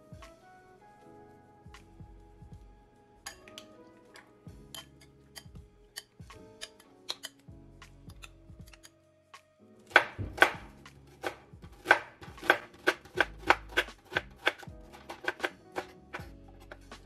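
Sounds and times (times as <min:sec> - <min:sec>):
knife chopping on cutting board: 0:09.9 - 0:16.3.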